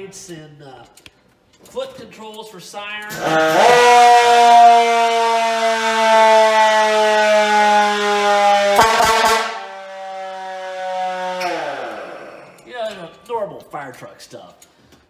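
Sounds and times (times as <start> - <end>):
clicks: 0.2 - 3.3
fire truck siren winding down: 3.1 - 13.1.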